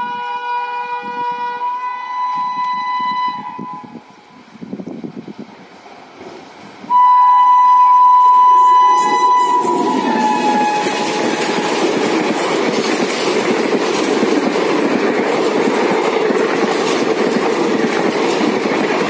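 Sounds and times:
locomotive horn blasts: 0.0 - 4.3, 6.9 - 12.0
train coaches rumbling past: 0.0 - 19.0.

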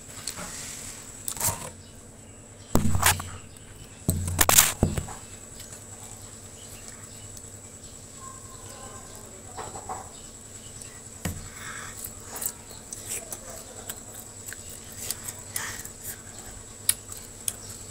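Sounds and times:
faint chewing: 8.2 - 17.9
snack crunching: 10.8 - 17.9.

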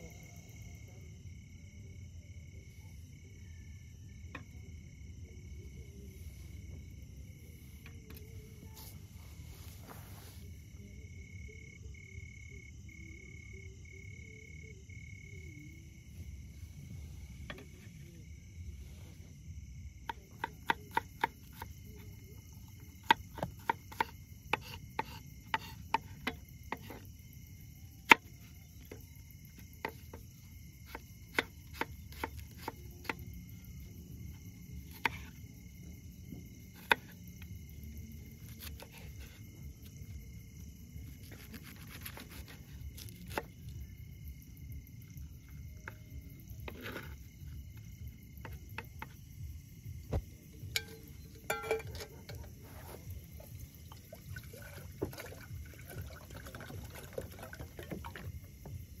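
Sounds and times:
crickets and insects chirping: 0.0 - 59.0
knife chopping on wooden board: 20.1 - 22.0, 23.0 - 27.0, 30.9 - 33.2, 36.8 - 37.1.

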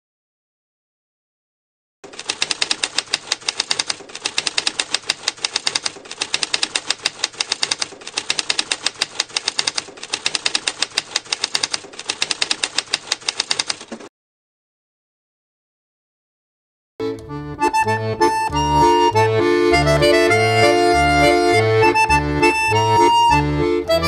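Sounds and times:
typewriter keys clacking: 2.0 - 14.1.

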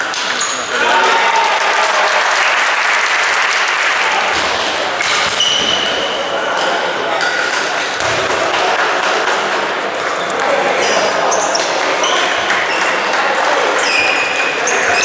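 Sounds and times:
table tennis balls bouncing: 0.0 - 0.8, 4.2 - 15.0
spectators clapping and cheering: 0.0 - 5.4, 7.5 - 10.8, 11.7 - 13.8.

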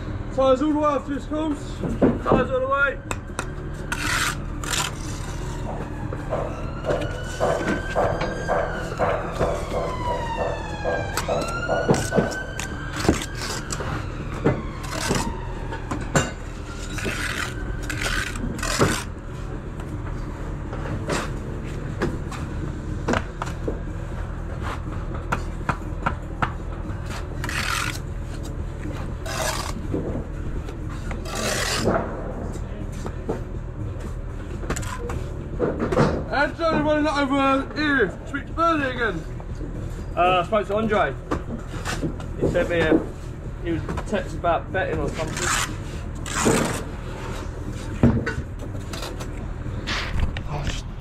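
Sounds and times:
siren wailing: 2.2 - 20.3
trowel scraping mortar: 3.9 - 5.6, 16.8 - 19.1, 27.4 - 28.0, 29.2 - 29.8, 31.2 - 31.9, 45.1 - 46.9.

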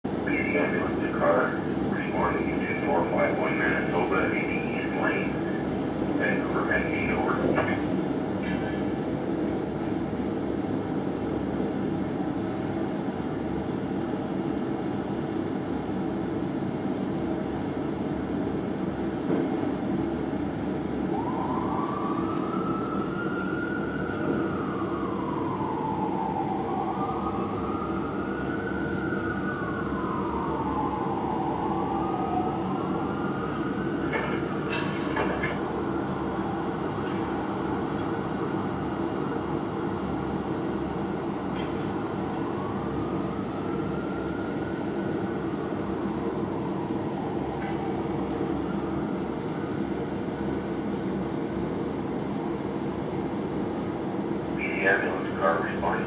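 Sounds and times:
city traffic noise: 0.0 - 56.0
fire engine siren wailing: 0.2 - 7.8, 20.7 - 51.7, 54.4 - 56.0.

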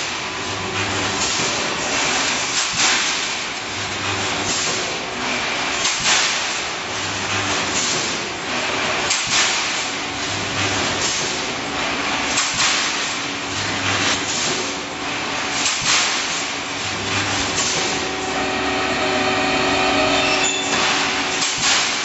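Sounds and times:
welding machine hiss: 12.2 - 22.0
low machine hum: 16.5 - 22.0.

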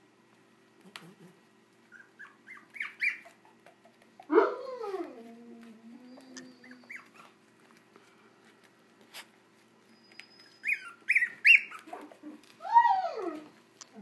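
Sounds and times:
puppies whimpering and yelping: 0.9 - 7.5, 9.8 - 14.0.

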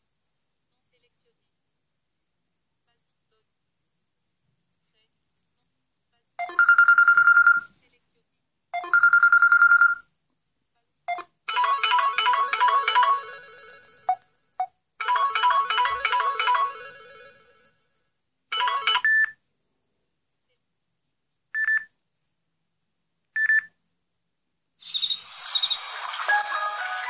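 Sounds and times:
phone ringtone melody: 6.4 - 7.6, 8.8 - 10.0, 11.5 - 14.2, 15.0 - 17.7, 18.5 - 19.3, 24.8 - 27.0.

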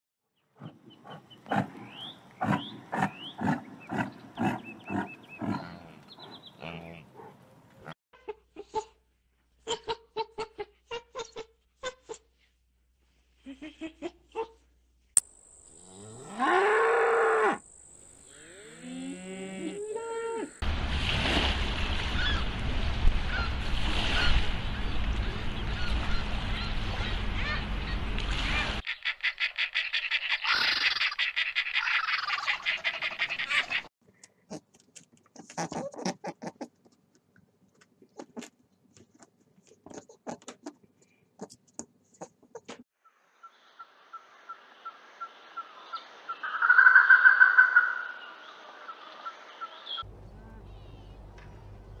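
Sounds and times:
cows mooing: 3.0 - 7.2, 15.8 - 17.6, 18.3 - 20.5
wind and water rushing: 20.6 - 28.8.

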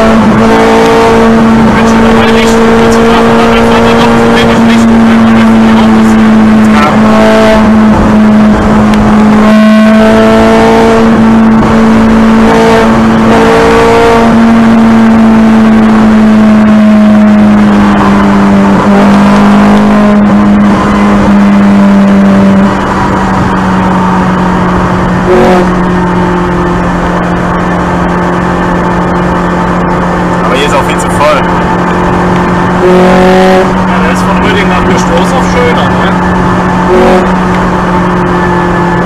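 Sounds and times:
car engine running inside cabin: 0.0 - 39.0.

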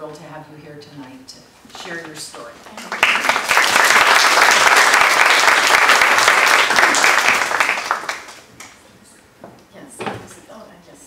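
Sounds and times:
audience applauding: 2.8 - 8.8.

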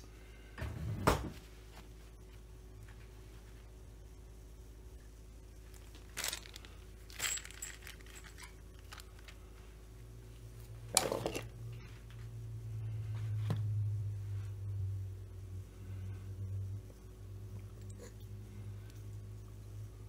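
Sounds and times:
low steady hum: 0.0 - 20.0
plastic bag rustling: 5.7 - 9.4
metal bolts clinking: 6.2 - 8.6.

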